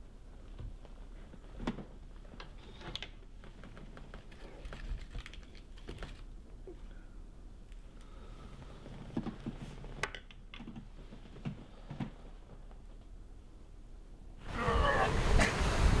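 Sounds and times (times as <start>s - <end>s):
plant stems clicking and rustling: 1.6s - 6.4s.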